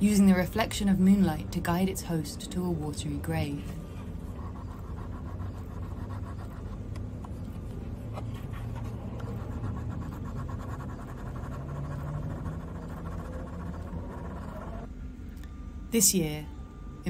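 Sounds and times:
eraser rubbing on paper: 0:03.8 - 0:14.9.

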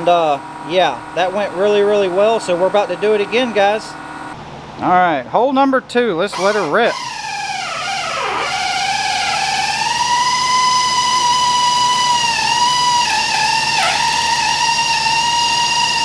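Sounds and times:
pneumatic air drill whining: 0:06.3 - 0:16.0.

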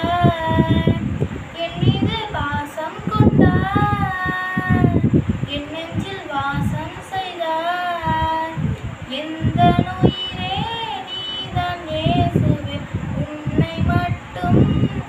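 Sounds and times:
girl singing solo: 0:00.0 - 0:15.0.

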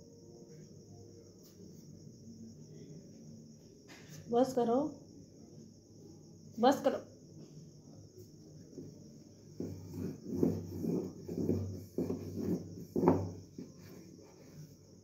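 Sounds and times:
rolling pin scraping over dough: 0:09.6 - 0:14.7.

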